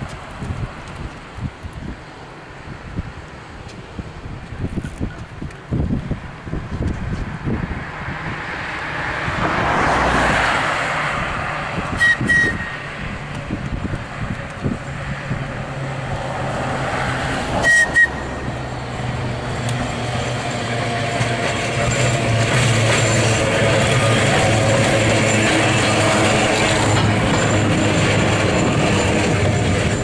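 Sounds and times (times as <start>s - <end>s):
tram rumbling past: 5.2s - 30.0s
tram horn toots: 11.9s - 13.0s, 17.3s - 30.0s
high motor whine: 12.0s - 30.0s.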